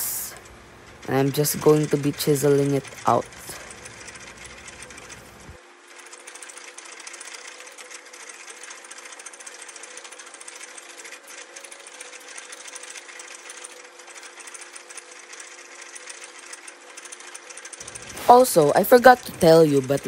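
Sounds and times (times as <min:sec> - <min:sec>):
lathe rattling clatter: 0:00.0 - 0:20.0.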